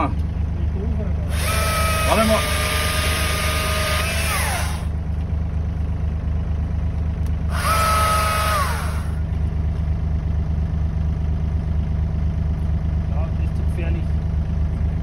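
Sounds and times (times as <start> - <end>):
diesel engine idling: 0.0 - 15.0
battery chainsaw whine: 1.3 - 4.9, 7.5 - 9.2.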